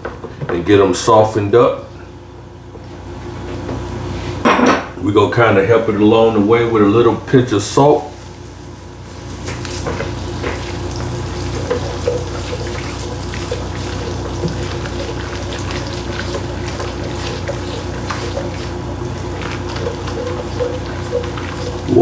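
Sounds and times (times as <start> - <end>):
onions sizzling in butter: 7.8 - 22.0.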